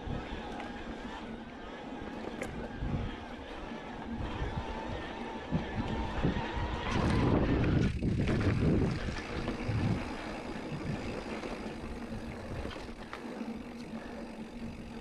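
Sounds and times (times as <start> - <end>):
bike tyres rumbling over dirt trail: 0.0 - 15.0
wind buffeting microphone: 2.3 - 15.0.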